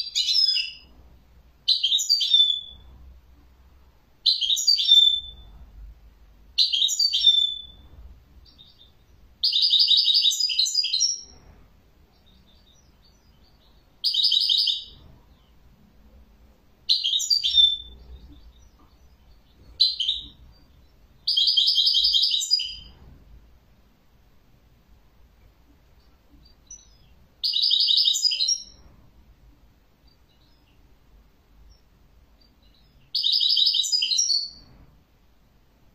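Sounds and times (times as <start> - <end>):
finch singing twittering trills: 1.7 - 2.8, 6.6 - 7.8, 8.4 - 11.4, 12.1 - 15.6, 16.9 - 23.0, 26.0 - 28.8, 30.0 - 30.8, 31.6 - 34.6.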